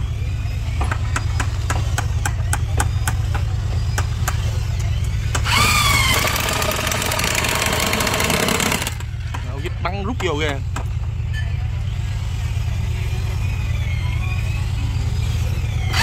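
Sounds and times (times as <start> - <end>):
power drill driving screw: 5.4 - 9.0.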